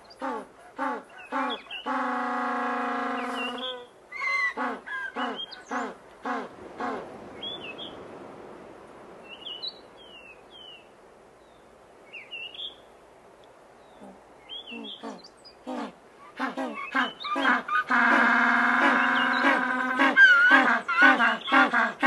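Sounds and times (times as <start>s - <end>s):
soft rushing background: 5.4s - 16.4s
penguins braying: 15.0s - 22.0s
high downward-sliding bird calls: 16.7s - 21.7s.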